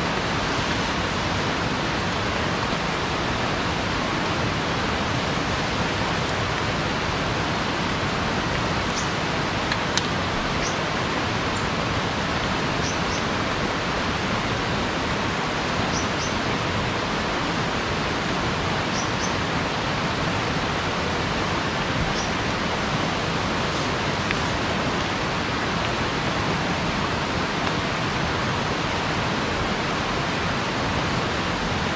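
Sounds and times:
fast-flowing rocky river: 0:00.0 - 0:31.9.

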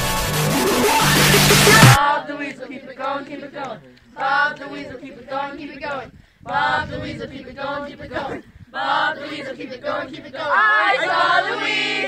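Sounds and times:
group of voices chanting: 0:00.6 - 0:12.0.

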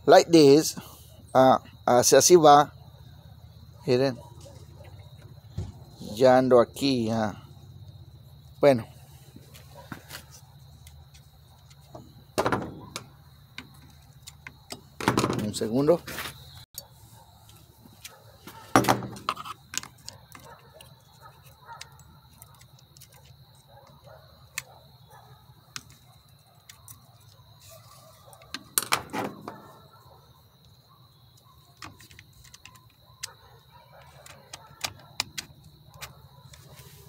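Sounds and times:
parts clattering: 0:09.4 - 0:16.6, 0:17.4 - 0:24.8
small parts clicking: 0:31.8 - 0:33.4.

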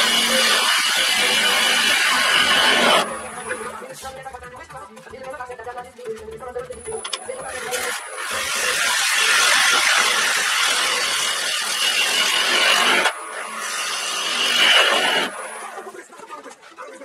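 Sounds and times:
lathe gouge scraping wood: 0:00.0 - 0:04.6, 0:07.0 - 0:15.9.

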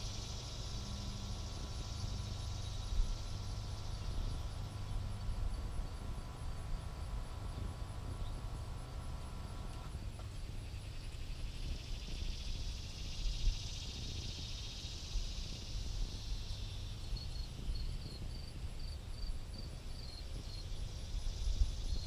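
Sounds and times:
insect drone: 0:00.0 - 0:22.0
wind rumbling on microphone: 0:10.0 - 0:22.0.

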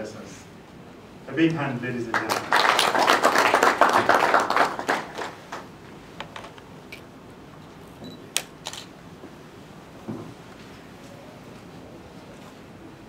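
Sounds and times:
audience applause: 0:02.1 - 0:05.7.

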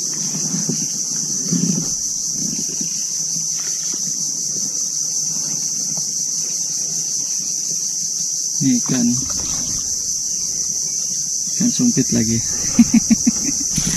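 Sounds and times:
rustling: 0:08.8 - 0:13.9.

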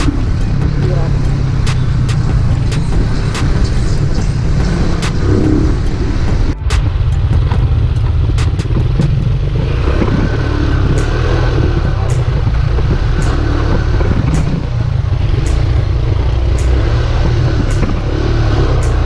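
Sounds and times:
motorcycle engine running: 0:00.0 - 0:19.0.

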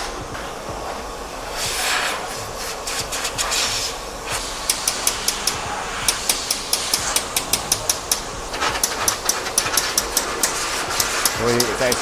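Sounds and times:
steady hiss: 0:00.0 - 0:12.0
hand tool clicking: 0:04.7 - 0:12.0.

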